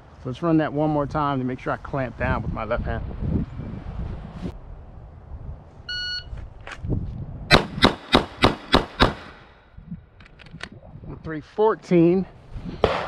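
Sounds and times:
pistol shots: 7.5s - 9.5s.

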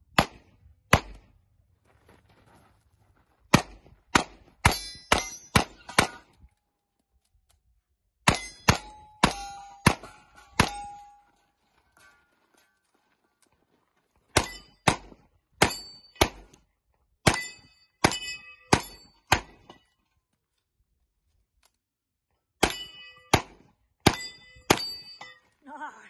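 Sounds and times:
revolver shots with metallic ring: 3.6s - 6.3s, 8.3s - 11.3s, 14.4s - 16.5s, 17.2s - 19.8s, 22.6s - 25.5s.

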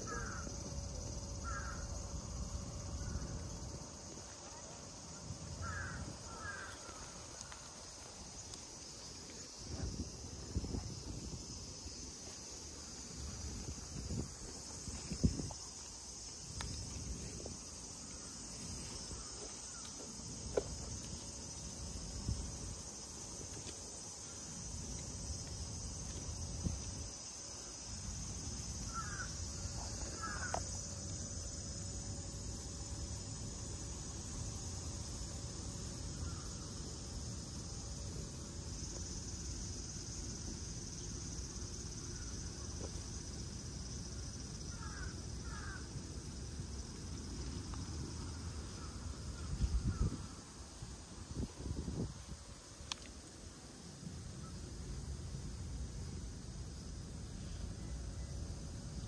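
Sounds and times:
high insect chorus: 0.0s - 59.0s
crow cawing: 0.1s - 0.5s, 1.4s - 1.9s, 5.6s - 7.2s, 28.9s - 29.3s, 30.1s - 30.6s, 44.7s - 45.9s.

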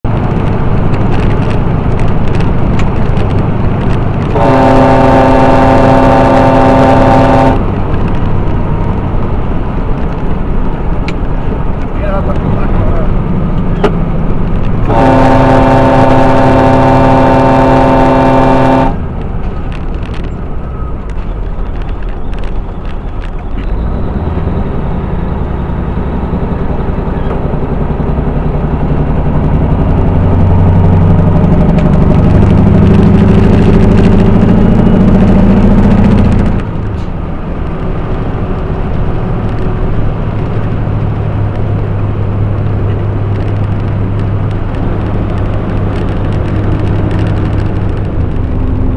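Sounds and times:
diesel truck engine drone: 0.0s - 48.9s
truck air horn blast: 4.2s - 7.7s, 14.8s - 19.0s.

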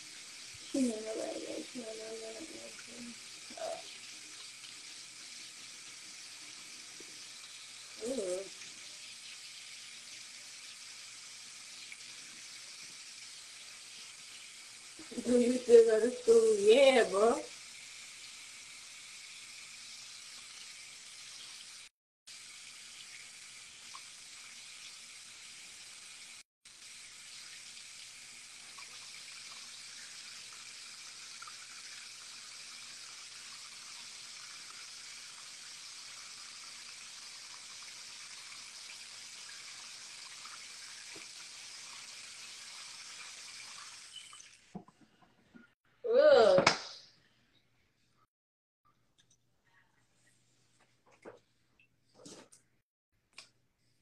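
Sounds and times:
running water hiss: 0.0s - 44.8s.

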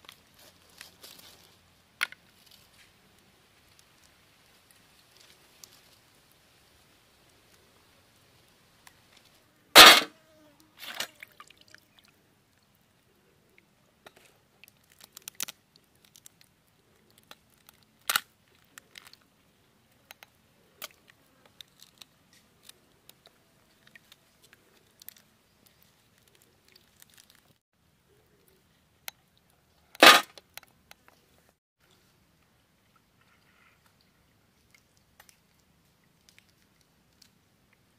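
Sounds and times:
crab shells cracking: 14.6s - 19.3s, 20.1s - 27.6s.

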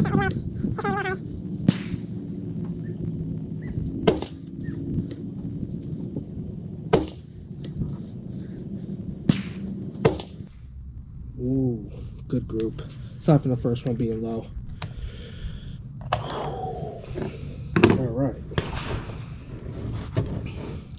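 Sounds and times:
rifle shots: 1.6s - 2.2s, 4.0s - 4.7s.

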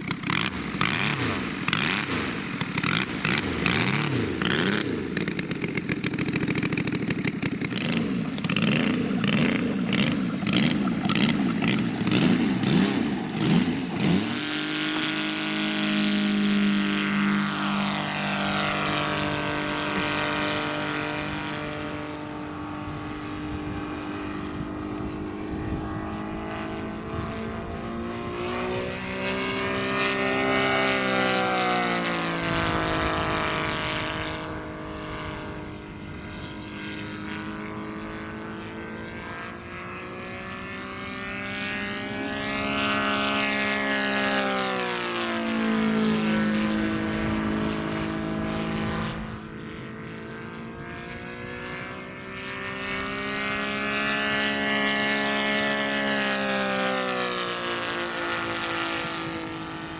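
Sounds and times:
model airplane engine passing: 0.0s - 59.9s.

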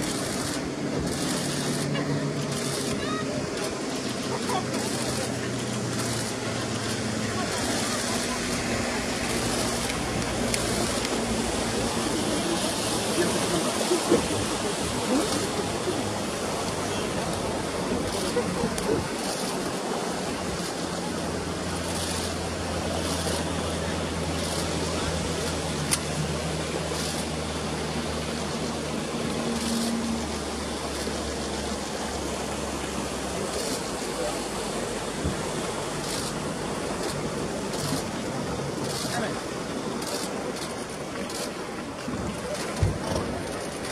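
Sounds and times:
low motor hum: 0.0s - 43.9s
steady rushing noise: 0.0s - 43.9s.

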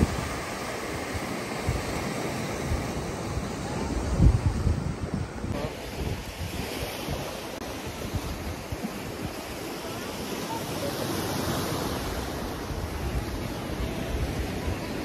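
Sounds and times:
wind rumbling on microphone: 0.0s - 9.8s
ocean waves breaking: 0.0s - 15.0s.

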